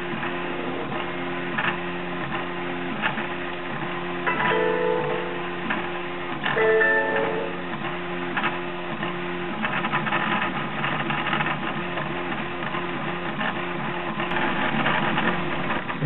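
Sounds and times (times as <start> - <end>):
stepper motors whining: 0.0 - 12.7.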